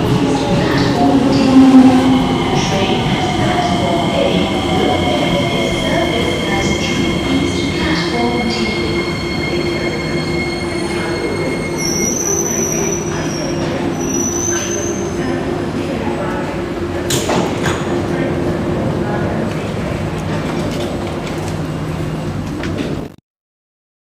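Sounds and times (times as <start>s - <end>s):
train rumble: 0.0s - 23.1s
high-pitched brake squealing: 1.3s - 15.2s.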